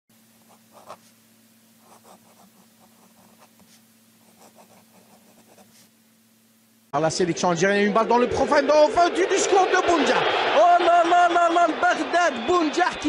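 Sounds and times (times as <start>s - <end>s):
faint steady hum: 0.1s - 7.7s
crayon scratching on paper: 0.4s - 1.2s, 1.8s - 6.0s.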